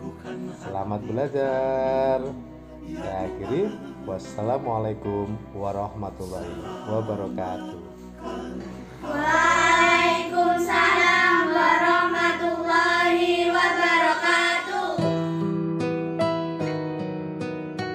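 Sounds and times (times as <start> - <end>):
person singing slow melody: 0.0 - 4.4, 6.2 - 9.4.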